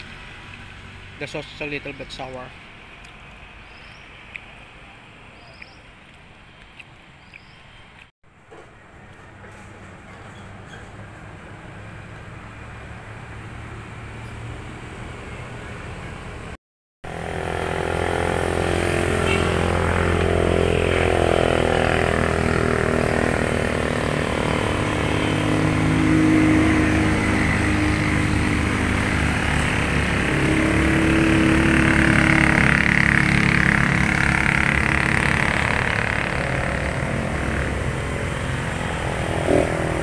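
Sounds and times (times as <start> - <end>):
motorcycle engine running: 17.1 - 40.0.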